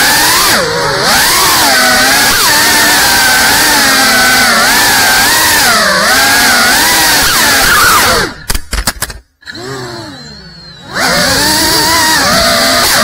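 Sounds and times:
drone motors whining: 0.0s - 8.6s, 9.4s - 13.0s.

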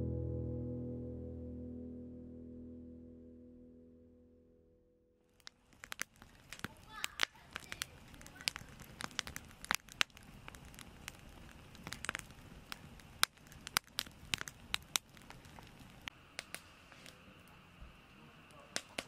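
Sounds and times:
fire crackling and popping: 5.2s - 19.0s.

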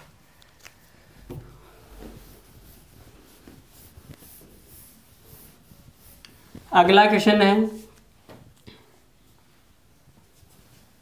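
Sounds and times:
cloth rubbing on whiteboard: 0.9s - 8.0s.

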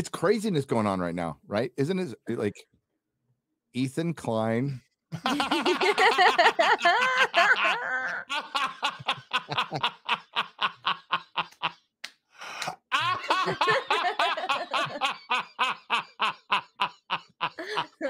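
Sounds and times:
people laughing hard: 5.2s - 11.8s, 12.9s - 18.0s.

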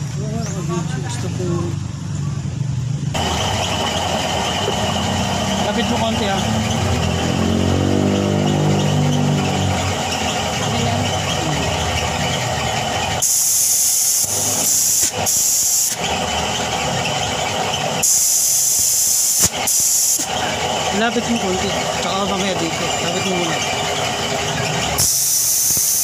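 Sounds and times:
low motor hum: 0.0s - 15.3s
compressed air hissing: 13.2s - 16.0s, 18.0s - 20.3s, 25.0s - 26.0s.

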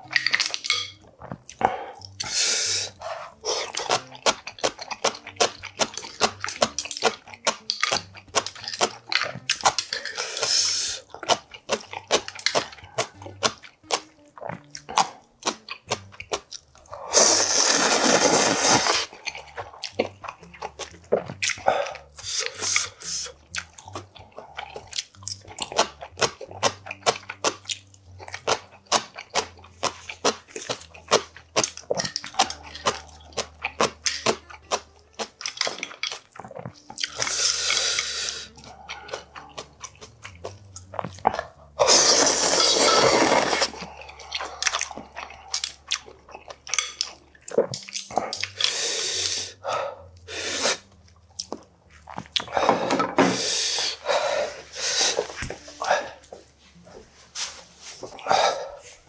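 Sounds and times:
wet chewing and mouth smacks: 0.0s - 52.8s
slurping noodles: 1.6s - 7.1s, 7.9s - 13.6s, 16.8s - 20.1s, 21.1s - 27.2s, 28.5s - 46.1s, 47.4s - 51.0s, 52.1s - 56.3s.

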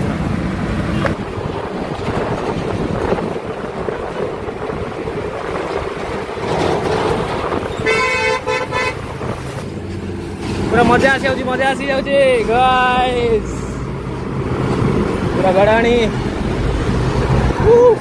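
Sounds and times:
passing road traffic: 0.0s - 18.0s
vehicle horn honking: 7.8s - 9.1s.

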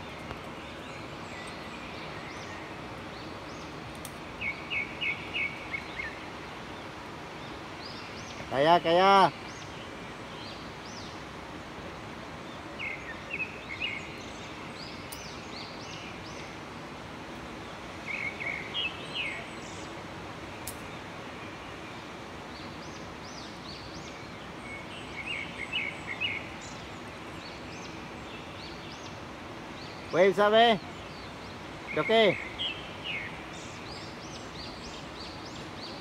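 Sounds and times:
steady background hiss: 0.0s - 36.0s
bird chirping: 22.5s - 29.2s, 29.8s - 36.0s.

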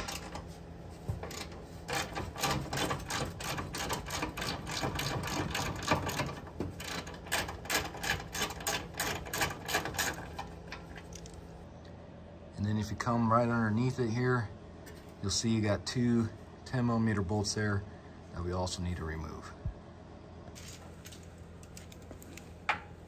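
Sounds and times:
hand ratchet clicking: 1.3s - 10.5s.

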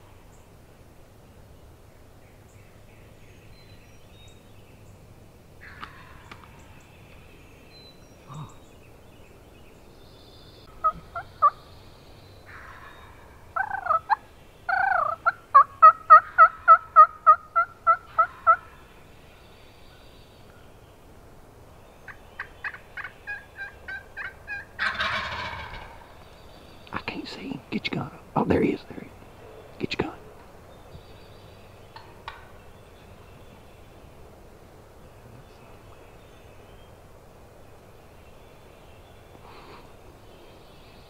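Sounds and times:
turkey calling: 5.6s - 6.8s, 10.6s - 11.7s, 12.5s - 18.8s, 22.1s - 30.5s.

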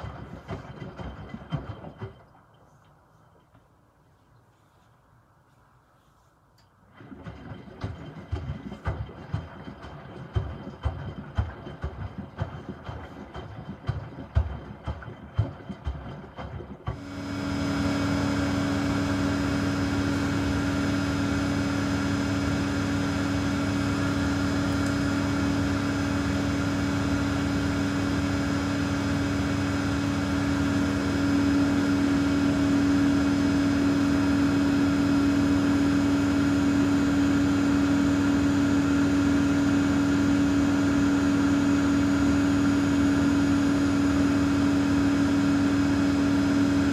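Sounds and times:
washing machine spin hum and whine: 0.0s - 2.7s, 6.8s - 46.9s
washing machine drum tumbling knocks: 7.3s - 17.1s.

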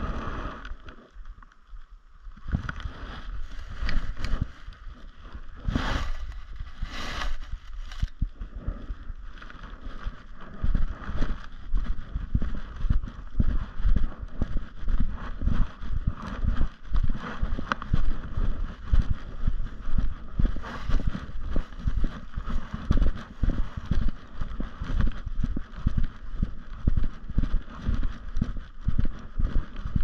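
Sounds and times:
footsteps on forest trail: 2.3s - 30.0s
camera jostling: 2.4s - 5.0s.

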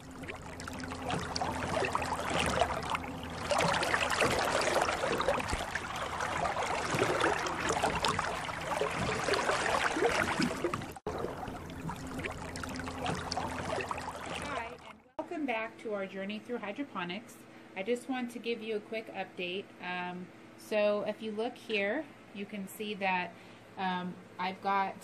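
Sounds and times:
water trickling and bubbling: 0.0s - 15.0s
steady low hum: 0.0s - 25.0s.

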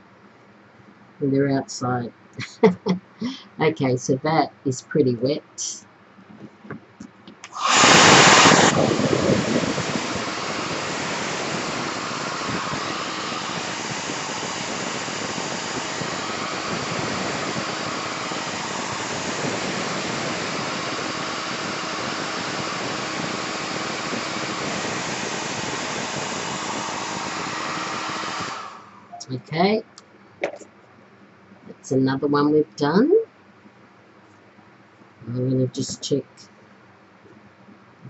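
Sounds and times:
heat tool blowing hiss: 7.5s - 29.2s.

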